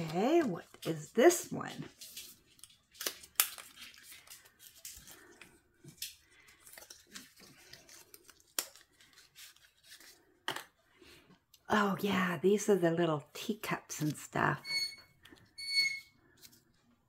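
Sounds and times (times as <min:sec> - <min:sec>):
paper stickers rustling: 0:00.0 - 0:10.4.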